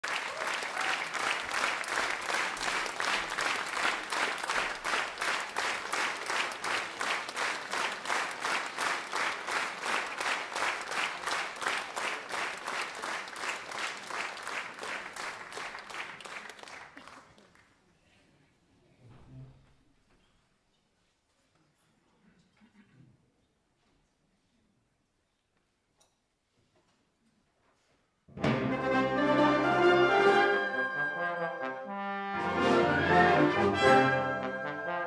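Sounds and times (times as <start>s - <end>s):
audience clapping in unison: 0.0s - 17.8s.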